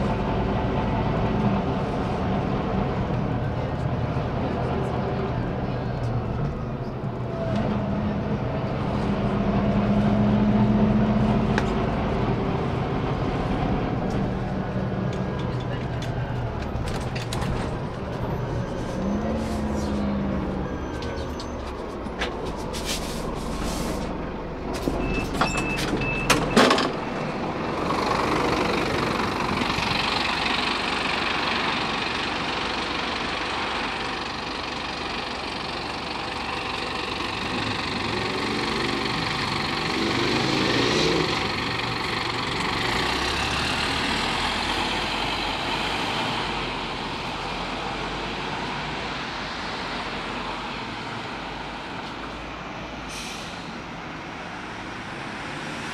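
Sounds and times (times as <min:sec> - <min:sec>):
bus diesel engine: 0:00.0 - 0:55.9
short beep: 0:25.0 - 0:26.8.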